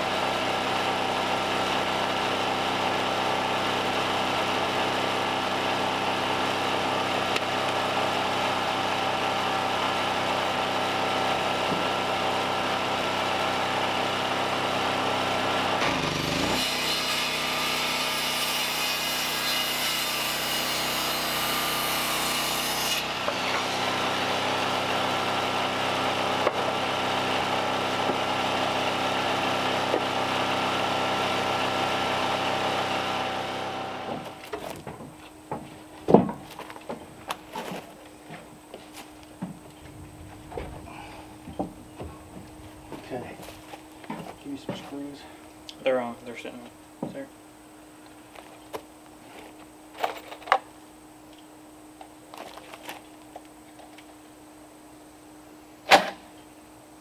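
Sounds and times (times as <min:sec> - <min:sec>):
circular saw cutting wood: 0:00.0 - 0:34.6
portable generator running: 0:23.1 - 0:35.0.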